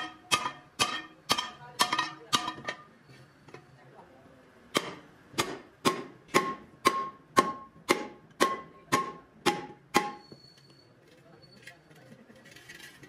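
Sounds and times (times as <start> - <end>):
hammer striking steel wheel: 0.0 - 2.9, 4.7 - 10.5.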